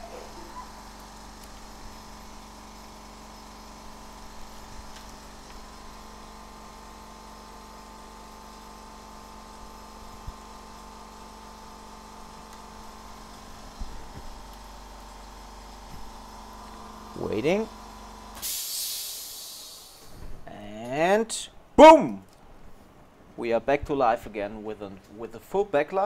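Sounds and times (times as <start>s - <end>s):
electrical hum and buzz: 0.0s - 18.5s.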